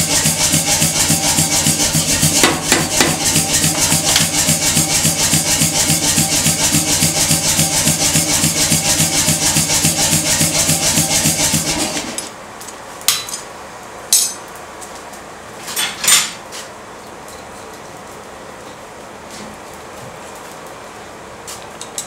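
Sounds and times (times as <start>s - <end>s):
power hammer striking hot steel: 0.0s - 12.3s, 14.1s - 14.5s.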